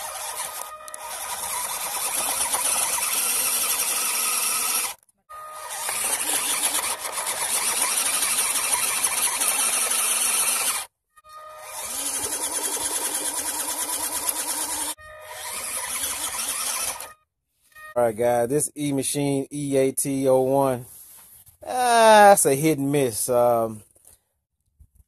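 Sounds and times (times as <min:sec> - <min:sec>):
rc truck motor whining: 0:00.0 - 0:17.2.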